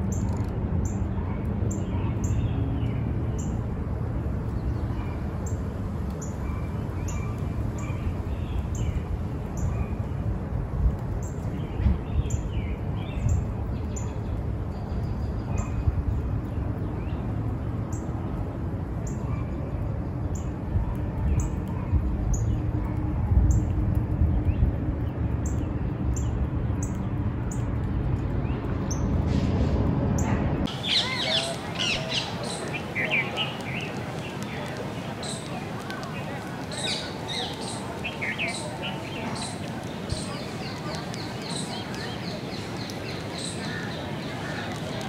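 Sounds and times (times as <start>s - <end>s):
steady low rumble: 0.0s - 45.0s
birds calling: 4.5s - 10.1s, 30.7s - 45.0s.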